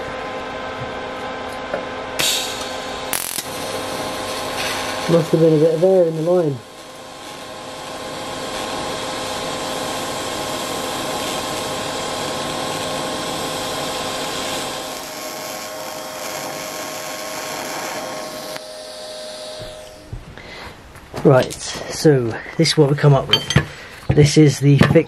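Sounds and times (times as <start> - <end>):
welding arc hissing: 2.2 - 20.6.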